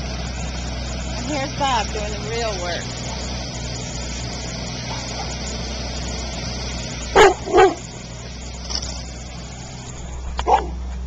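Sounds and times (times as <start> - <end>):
excavator engine running: 0.0 - 11.0
dog barking: 4.9 - 5.4, 7.1 - 7.9, 10.4 - 10.8.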